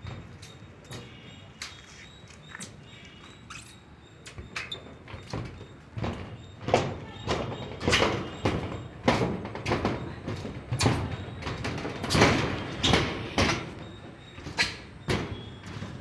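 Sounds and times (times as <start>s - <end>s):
knocks and bangs with ringing: 4.4s - 16.0s.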